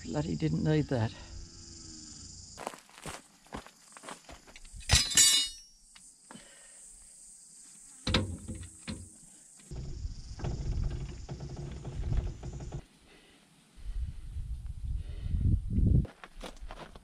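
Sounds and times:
steel tools clanking: 4.8 - 5.7
jack scraping and knocking: 9.7 - 12.8.

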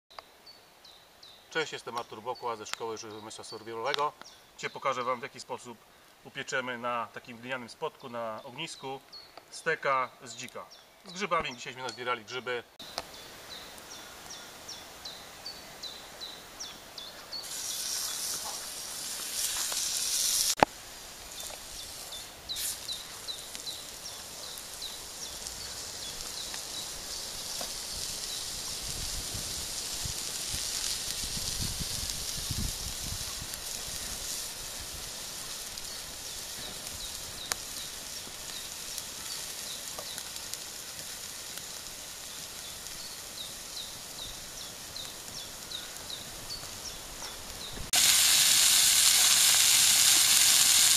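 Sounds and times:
steak sizzling on hot plate: 17.4 - 50.9.

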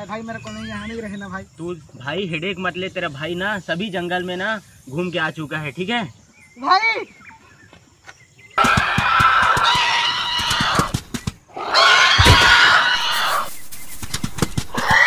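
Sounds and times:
heavy thudding footsteps: 12.2 - 15.0.

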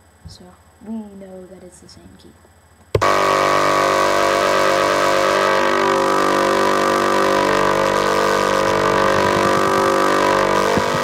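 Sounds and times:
synthesizer held square-wave note: 3.0 - 11.0.

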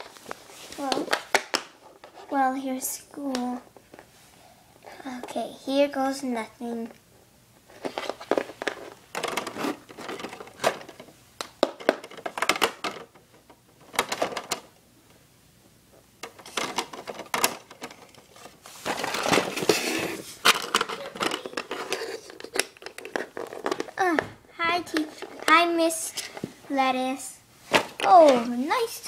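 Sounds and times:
plastic figures clattering on floor: 0.0 - 1.8, 7.7 - 14.7, 16.2 - 26.4.

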